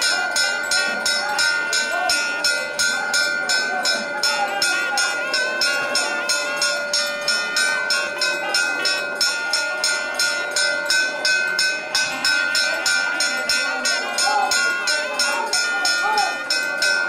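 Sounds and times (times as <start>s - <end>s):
temple bell ringing: 0.0s - 17.0s.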